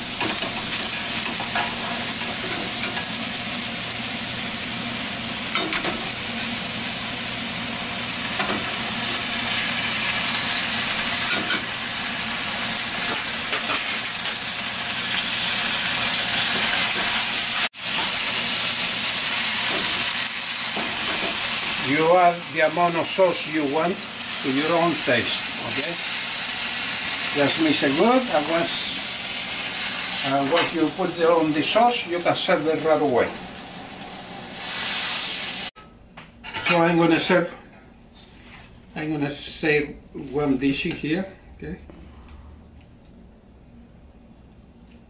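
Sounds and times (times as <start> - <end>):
food sizzling in a wok: 0.0 - 35.8.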